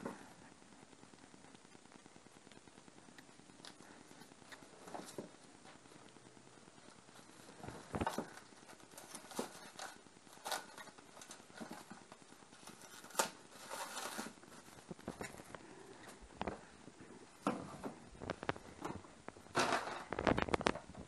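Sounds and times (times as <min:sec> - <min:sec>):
plastic cling film crinkling: 0:07.0 - 0:15.6, 0:18.1 - 0:21.0.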